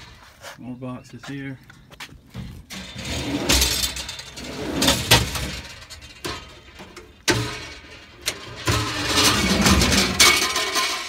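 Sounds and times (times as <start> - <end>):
metal drawers rattling: 2.7 - 11.0.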